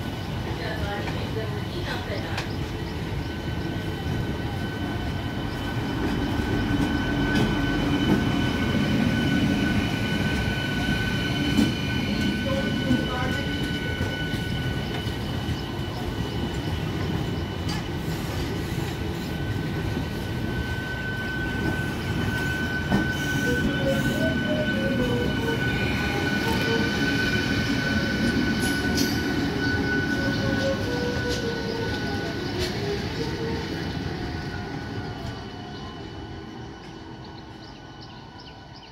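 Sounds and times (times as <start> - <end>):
high-pitched train whine: 0.0 - 38.9
train wheels rumbling on rails: 0.0 - 38.9.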